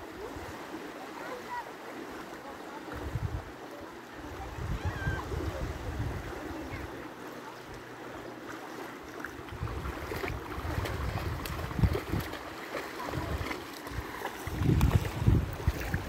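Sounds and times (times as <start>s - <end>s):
small waves lapping at shore: 0.0s - 16.0s
wind rumbling on microphone: 3.0s - 3.6s, 4.2s - 7.0s, 9.4s - 16.0s.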